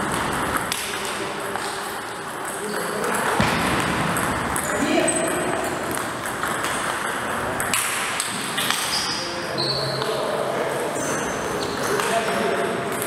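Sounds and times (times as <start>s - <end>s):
table tennis ball pinging: 0.0s - 9.1s.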